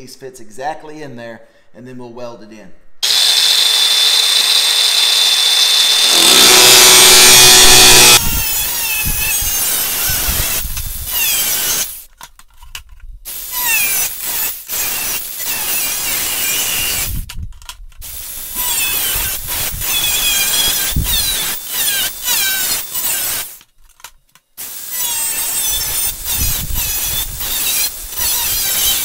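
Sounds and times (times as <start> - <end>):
angle grinder cutting sheet metal: 3.0 - 12.0, 13.6 - 17.1, 18.5 - 23.6, 24.6 - 29.0.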